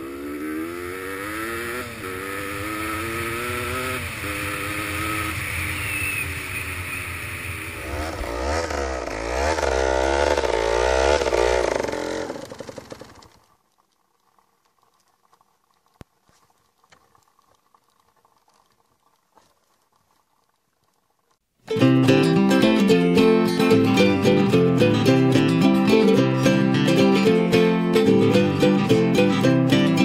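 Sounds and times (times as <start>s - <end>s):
dirt bike engine revving: 0.0s - 13.4s.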